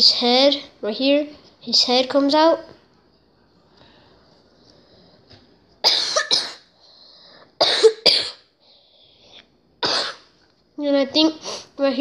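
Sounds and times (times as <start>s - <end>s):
person coughing: 5.8s - 6.6s, 7.6s - 8.4s, 9.8s - 10.2s.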